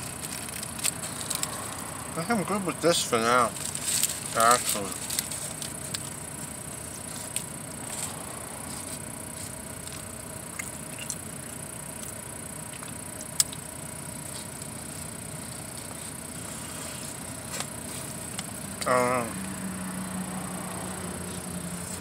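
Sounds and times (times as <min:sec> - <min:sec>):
steady low hum: 0:00.0 - 0:22.0
person chewing: 0:05.1 - 0:19.6.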